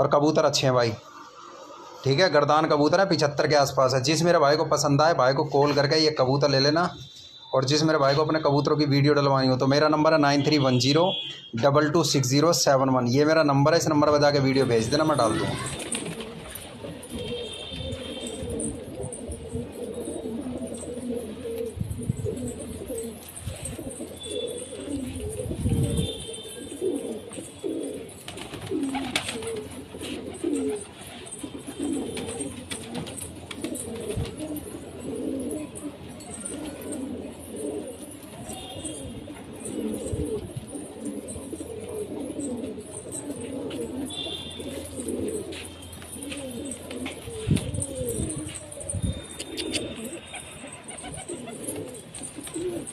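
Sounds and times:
pigeons cooing: 13.7 - 52.9.

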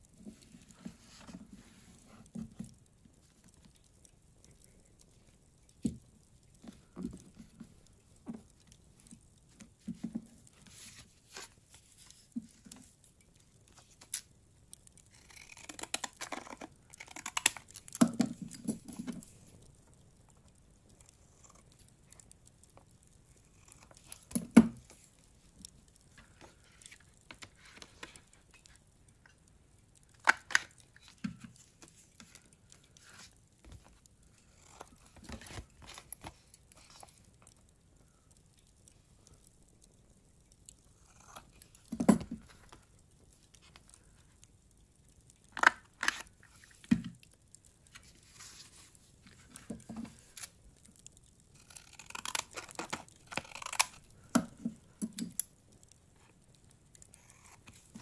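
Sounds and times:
scissors snipping paper: 15.1 - 18.4, 51.6 - 54.5.

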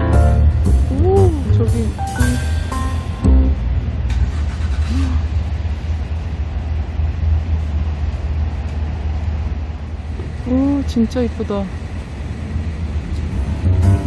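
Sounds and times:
car engine rumble: 0.0 - 14.0
road noise: 0.0 - 14.0.

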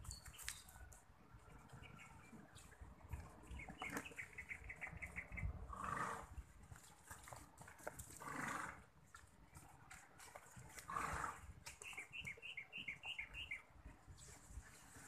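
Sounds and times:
horse snorting: 5.6 - 6.4, 7.9 - 9.0, 10.6 - 11.6.

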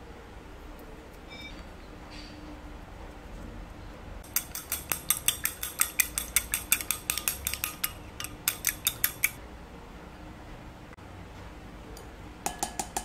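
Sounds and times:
eggs being beaten in glass bowl: 4.2 - 9.4, 12.4 - 13.0
utensil clicking against glass: 4.2 - 9.4.

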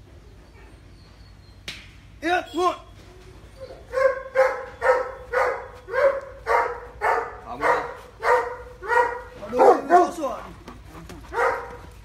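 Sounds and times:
dog barking: 3.8 - 10.3, 11.3 - 12.0.

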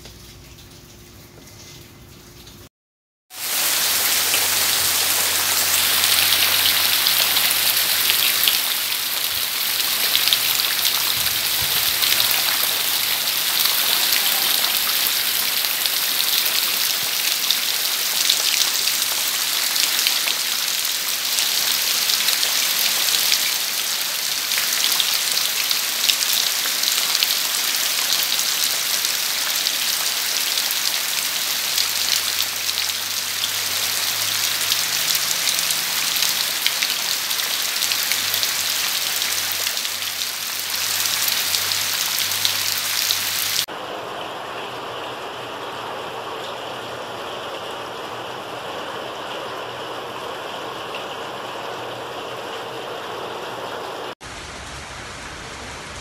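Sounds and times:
raindrops ticking and splashing: 0.0 - 2.7, 3.3 - 54.2
steady rain hiss: 3.3 - 56.0.

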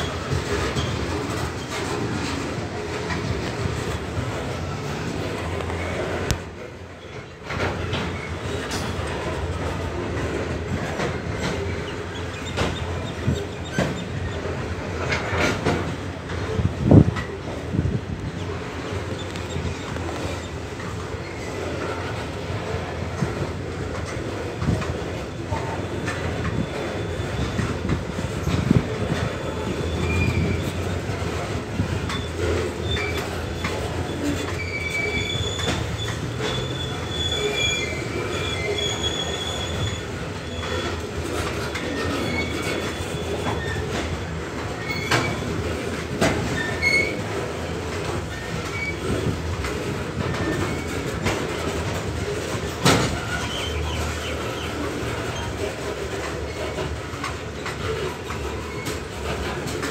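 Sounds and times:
train wheels rumbling on rails: 0.0 - 59.9
wheels clacking over rail joints: 0.0 - 59.9
high wheel squeals: 25.1 - 45.8, 46.4 - 47.6, 51.7 - 56.8.

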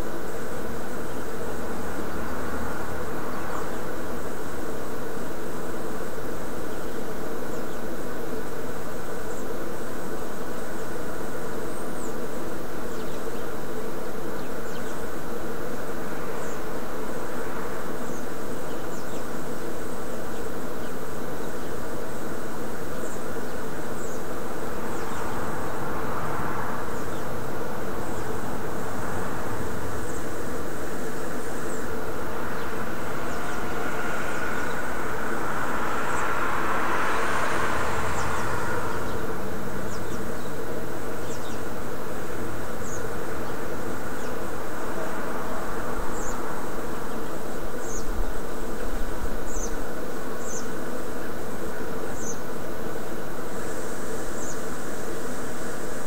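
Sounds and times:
steady buzzing hum: 0.0 - 56.0
broad rushing noise: 15.0 - 56.0.

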